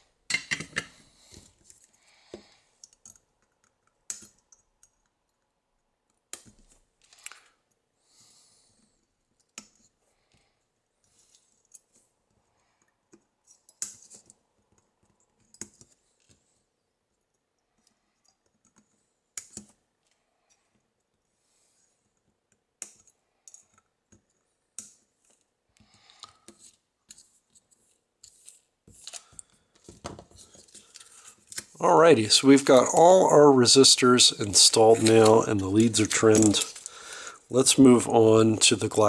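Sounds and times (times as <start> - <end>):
soft handling rustles: 34.0 - 37.0.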